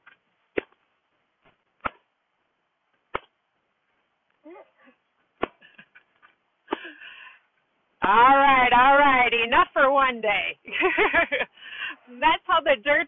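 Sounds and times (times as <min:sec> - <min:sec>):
rug beater slapping rug: 0:00.0 - 0:02.1, 0:03.0 - 0:03.4, 0:05.3 - 0:06.8.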